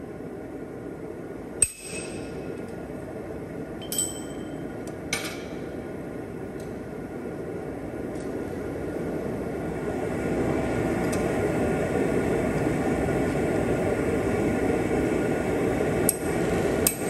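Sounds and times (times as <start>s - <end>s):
hammer striking steel on anvil: 1.6s - 2.4s.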